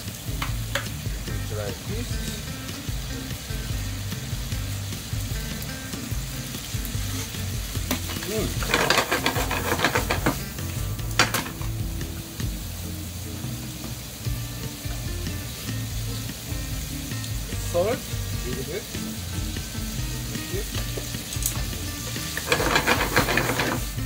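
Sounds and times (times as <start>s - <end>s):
food sizzling in frying pan: 0.0s - 24.0s
pan knocking: 7.8s - 11.8s, 20.8s - 24.0s.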